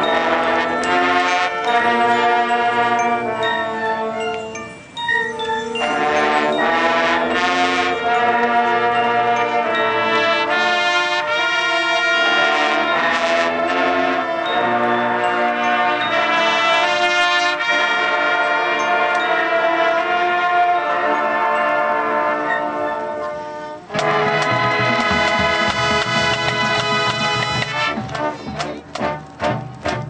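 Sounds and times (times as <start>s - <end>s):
brass chords: 0.0s - 4.6s, 5.8s - 30.0s
marching band playing: 0.0s - 5.0s, 5.7s - 30.0s.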